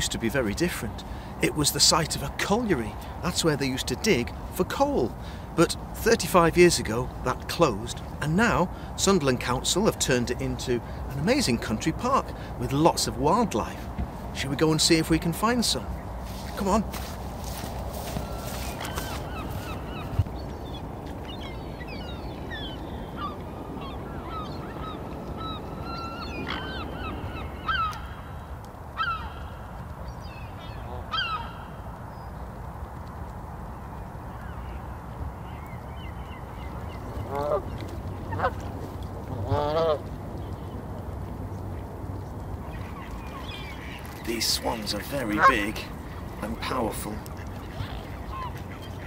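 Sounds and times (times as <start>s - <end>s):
geese honking: 37.1s - 38.7s, 43.4s - 49.0s.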